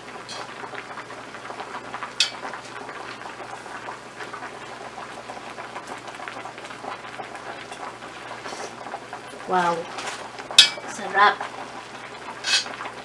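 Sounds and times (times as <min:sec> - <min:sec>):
broth boiling in a pot: 0:00.0 - 0:13.0
metal spoon clinking on pot: 0:10.6 - 0:10.8.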